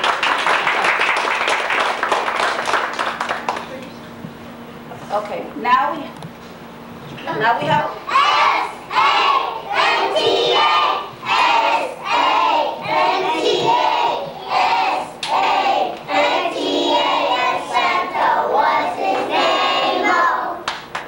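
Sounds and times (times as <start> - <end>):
children singing in unison: 8.1 - 20.6.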